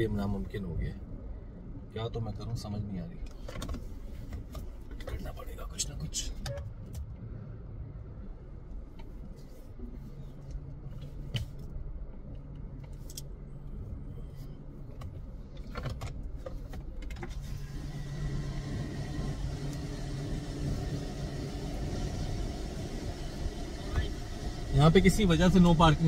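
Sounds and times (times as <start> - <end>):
car engine idling: 17.4 - 26.0.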